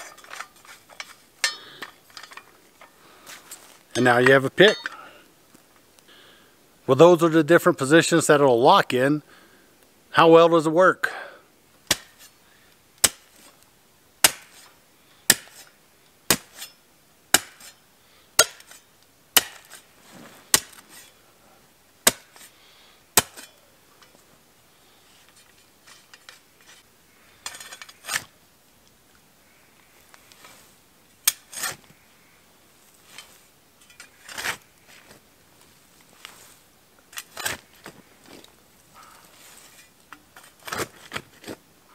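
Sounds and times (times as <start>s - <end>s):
shovel scraping dirt: 0.0s - 5.1s, 11.9s - 12.4s, 13.0s - 13.6s, 14.2s - 17.8s, 18.4s - 21.2s, 22.0s - 22.6s, 23.2s - 24.2s, 25.1s - 28.4s, 30.2s - 32.0s, 32.9s - 35.2s, 36.1s - 41.6s
shovel striking hard ground: 11.9s - 12.3s, 13.0s - 13.5s, 14.2s - 14.7s, 15.3s - 17.8s, 18.4s - 18.8s, 19.4s - 19.9s, 20.5s - 21.1s, 22.0s - 22.5s, 23.2s - 23.6s, 31.2s - 31.8s, 37.1s - 38.4s.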